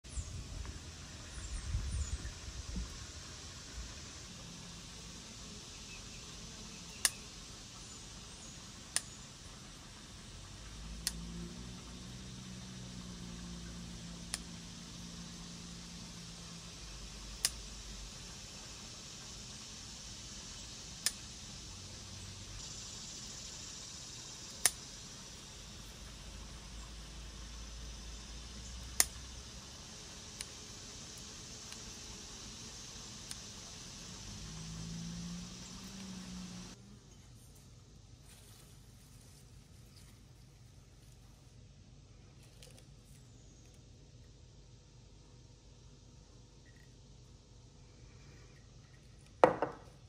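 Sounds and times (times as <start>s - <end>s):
faint outdoor hiss: 0.0s - 50.0s
sharp clicks: 28.9s - 29.2s.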